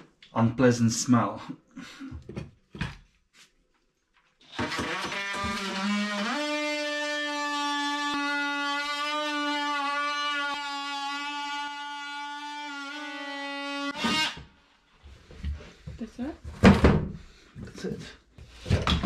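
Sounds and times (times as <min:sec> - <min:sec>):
oscillating multi-tool buzzing: 0:04.5 - 0:14.4.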